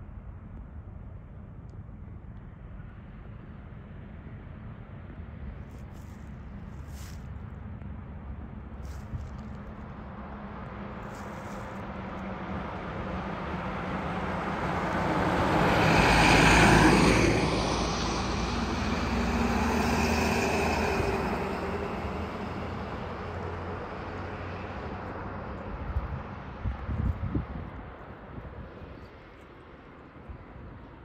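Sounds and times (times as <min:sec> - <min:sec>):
fire engine diesel engine passing: 0:10.6 - 0:26.1
ambulance passing: 0:12.3 - 0:25.5.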